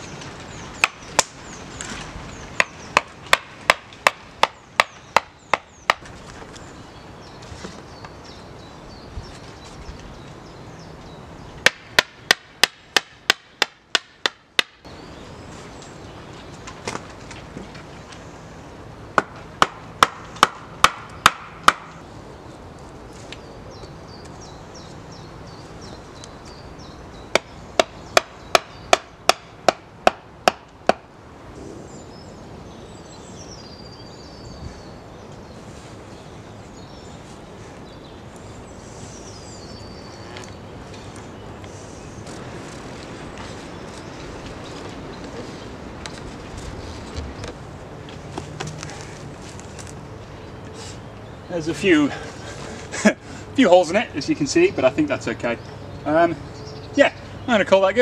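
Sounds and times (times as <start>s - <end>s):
hatchet hammering wooden stakes: 0.8s - 1.4s, 2.6s - 6.0s, 11.6s - 14.9s, 19.2s - 22.0s, 27.3s - 31.1s.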